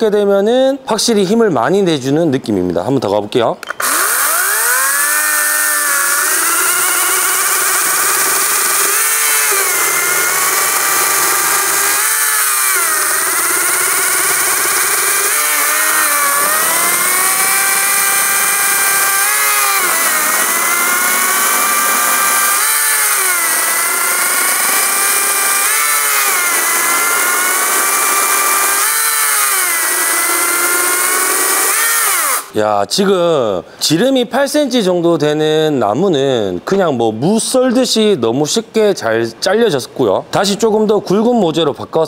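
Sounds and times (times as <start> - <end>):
chainsaw cutting a log: 3.6 - 32.6.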